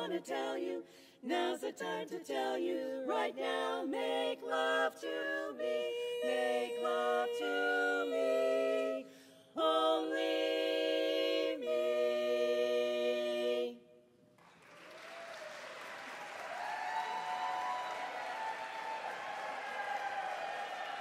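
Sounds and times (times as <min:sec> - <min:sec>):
women singing in close harmony: 0:00.0 - 0:13.9
audience applause: 0:14.4 - 0:21.0.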